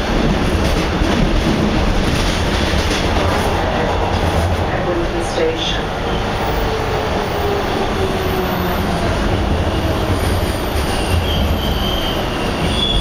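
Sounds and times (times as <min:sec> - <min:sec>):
subway car wheels rumbling on rail: 0:00.0 - 0:13.0
faint high wheel squeal: 0:10.9 - 0:13.0.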